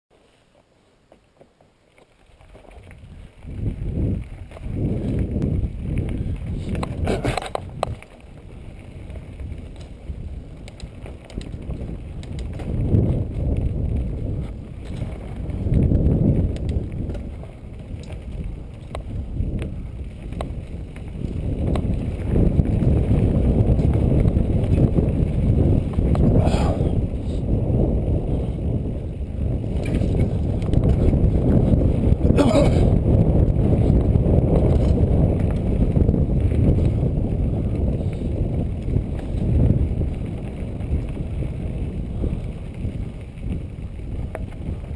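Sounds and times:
bike tyres rumbling over dirt: 0.1s - 44.9s
wind buffeting microphone: 2.4s - 44.9s
rattling clicks from bike: 6.0s - 22.9s, 29.6s - 31.8s, 42.2s - 44.9s.

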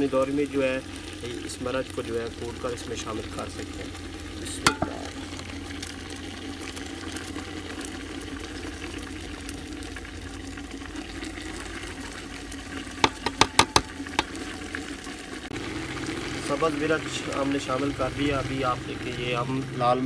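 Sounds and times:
pot boiling with bubbling hiss: 0.0s - 20.0s
plastic jar knocking on pot rim: 4.7s - 5.2s, 13.0s - 14.4s.

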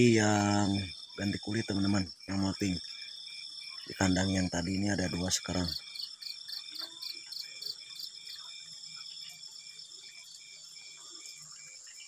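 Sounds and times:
crickets chirping: 0.0s - 12.0s
insects trilling: 0.0s - 12.0s.

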